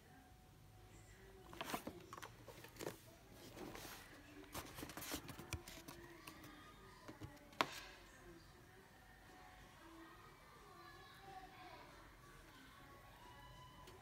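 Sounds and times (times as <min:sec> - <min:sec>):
packaging rustling: 0:01.5 - 0:06.2.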